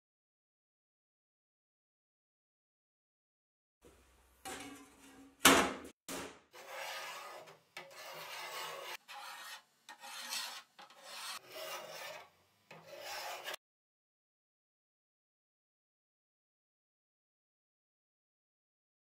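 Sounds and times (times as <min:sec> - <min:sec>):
compass scraping metal: 0:06.6 - 0:13.6.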